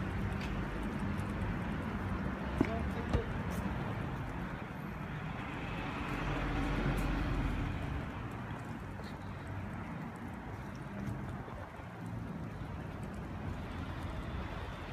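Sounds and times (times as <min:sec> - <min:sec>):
street traffic noise: 0:00.0 - 0:14.9
vehicle passing by: 0:00.8 - 0:10.2.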